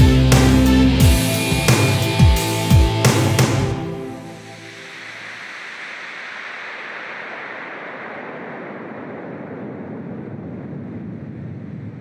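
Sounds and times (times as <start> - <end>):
rushing water underwater: 4.5 - 12.0.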